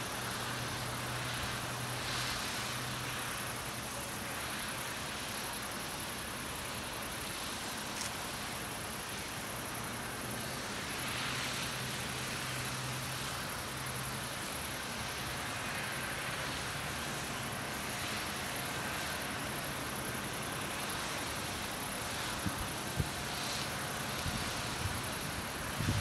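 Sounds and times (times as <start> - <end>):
thin high hiss: 0.0 - 26.0.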